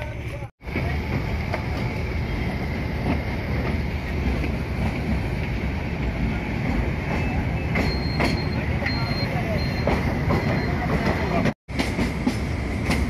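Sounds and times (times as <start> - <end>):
train coach and wheels rumbling: 0.0 - 13.0.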